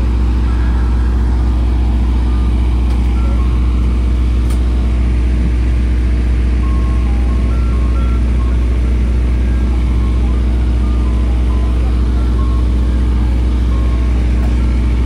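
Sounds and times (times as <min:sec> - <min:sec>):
ice cream truck engine droning: 0:00.0 - 0:15.0.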